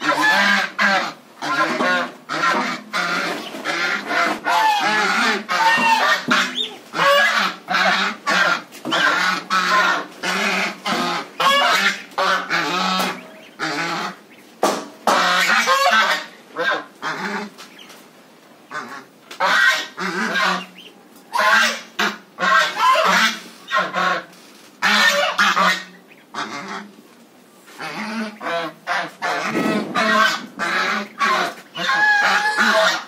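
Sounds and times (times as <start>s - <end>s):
geese honking: 0.0s - 18.0s, 18.7s - 27.0s, 27.7s - 33.0s.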